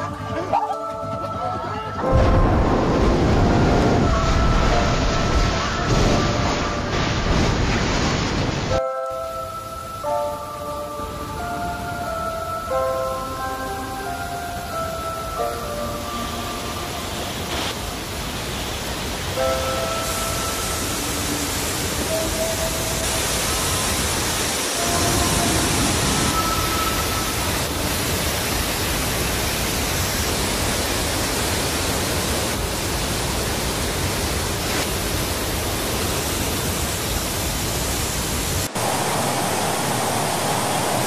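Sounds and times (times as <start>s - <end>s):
floodwater crashing over a wall: 2.1s - 8.8s.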